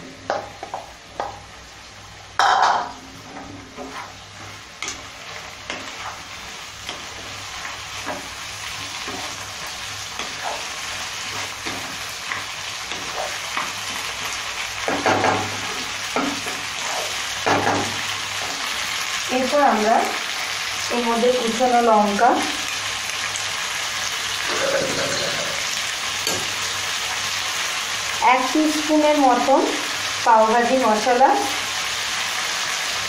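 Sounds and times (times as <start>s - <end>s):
vegetables sizzling in a wok: 0.0s - 33.0s
wooden spatula scraping: 3.0s - 14.1s.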